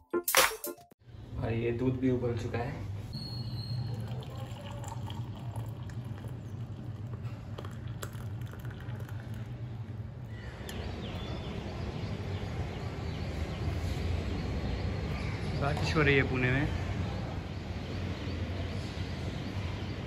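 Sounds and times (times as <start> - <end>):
tea trickling into a mug: 3.4 - 10.8
birds chirping: 9.2 - 20.0.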